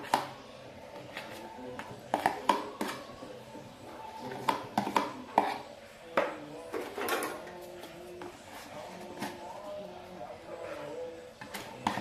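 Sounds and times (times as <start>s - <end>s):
fork scraping plastic tub: 4.2s - 5.7s, 10.6s - 12.0s.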